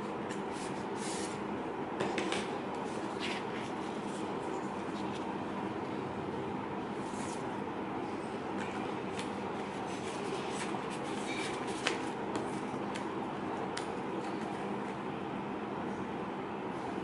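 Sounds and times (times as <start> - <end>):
background hum and hiss: 0.0 - 17.0
paper and card rustling: 8.6 - 13.1.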